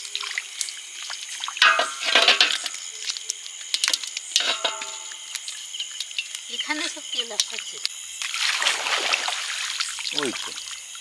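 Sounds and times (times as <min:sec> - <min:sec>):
fish flapping against metal basin: 0:00.2 - 0:07.7
metal basin ringing: 0:01.6 - 0:02.7, 0:04.4 - 0:05.3.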